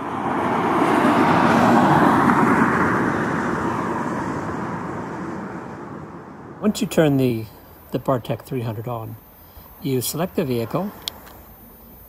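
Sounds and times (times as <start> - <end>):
vehicle passing by: 0.0 - 7.8.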